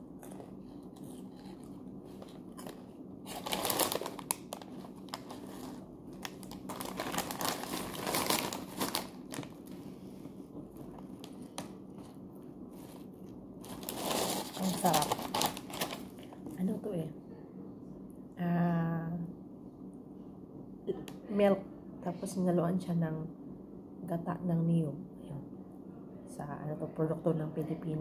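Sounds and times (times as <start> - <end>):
snack bag crinkling: 0.1 - 9.8, 10.8 - 12.1, 12.8 - 16.5.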